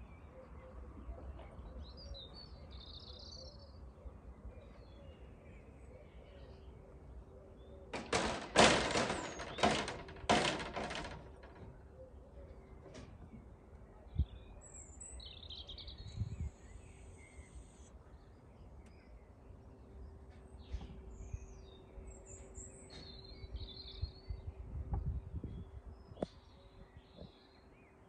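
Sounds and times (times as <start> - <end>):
birds chirping: 10.8 - 28.0.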